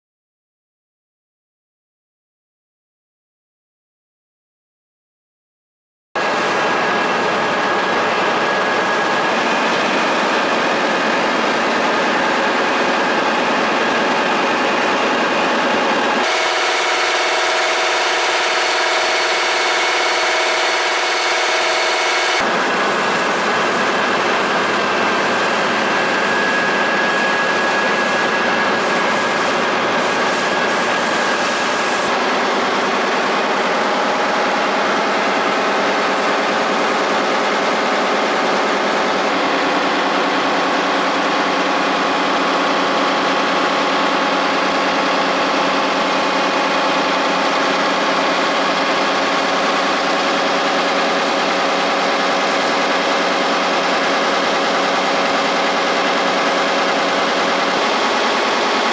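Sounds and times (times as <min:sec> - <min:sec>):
constant machine whine: 0:06.2 - 0:58.9
printing press mechanical din: 0:16.2 - 0:22.4.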